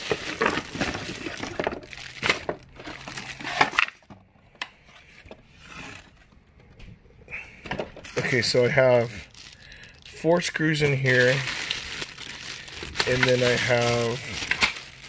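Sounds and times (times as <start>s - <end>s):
plastic and cardboard rustling: 0.0s - 7.0s, 7.6s - 15.0s.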